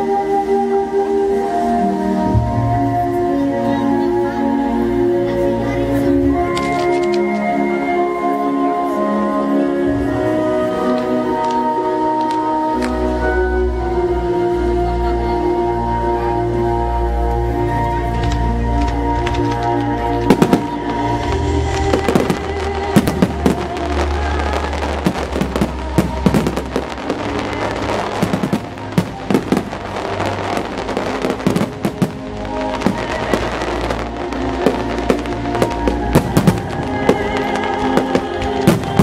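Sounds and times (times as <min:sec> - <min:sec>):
music: 0:00.0 - 0:39.0
fireworks bangs and crackling: 0:06.1 - 0:07.5, 0:17.7 - 0:39.0.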